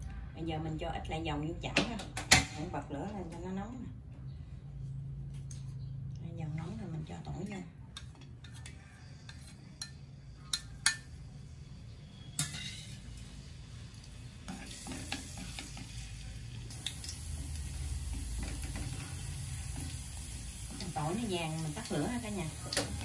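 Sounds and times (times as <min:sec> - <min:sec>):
garlic sizzling in oil: 0:12.2 - 0:23.0.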